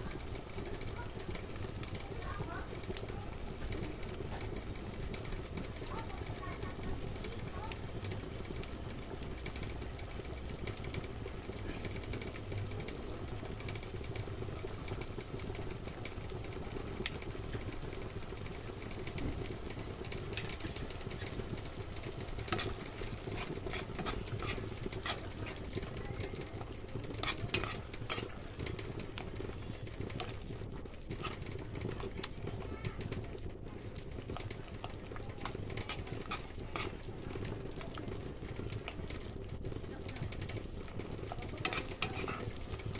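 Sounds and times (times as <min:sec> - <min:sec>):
sauce sizzling in a pan: 0:00.0 - 0:42.9
metal spoon scraping a pan: 0:20.1 - 0:30.4, 0:31.1 - 0:32.3, 0:34.8 - 0:37.2, 0:41.4 - 0:42.9.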